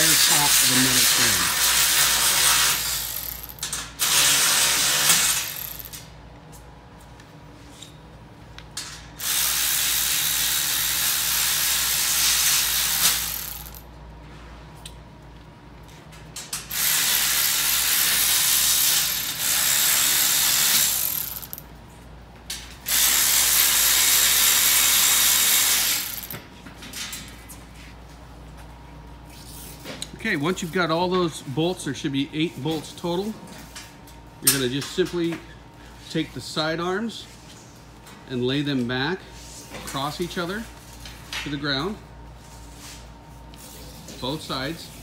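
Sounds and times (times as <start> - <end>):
electric ratchet running: 0.0 - 6.0, 9.2 - 13.9, 16.7 - 21.6, 22.8 - 26.3.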